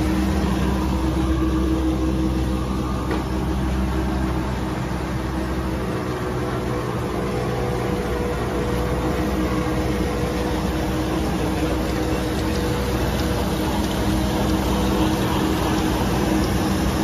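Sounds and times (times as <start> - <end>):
printing machine humming: 0.0 - 17.0
rollers and drives running: 0.0 - 17.0.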